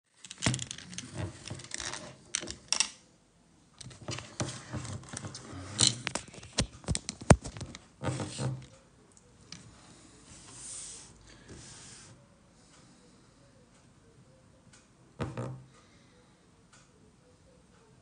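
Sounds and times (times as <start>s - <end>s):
objects being handled: 0.1s - 3.0s, 3.8s - 8.7s.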